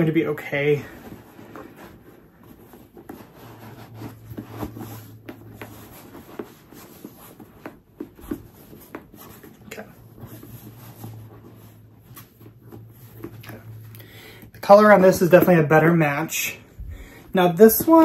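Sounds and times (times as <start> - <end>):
handbag rustling and rubbing: 0.0 - 13.9, 14.9 - 18.0
light scuffs and knocks: 0.9 - 13.9.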